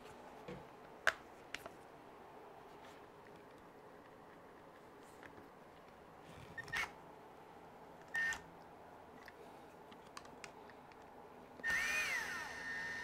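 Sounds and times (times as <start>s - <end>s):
electric screwdriver whining: 11.6s - 13.0s.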